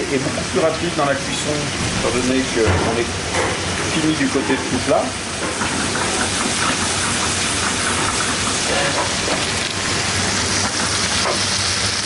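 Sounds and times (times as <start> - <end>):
frog legs sizzling in butter: 3.6 - 12.0.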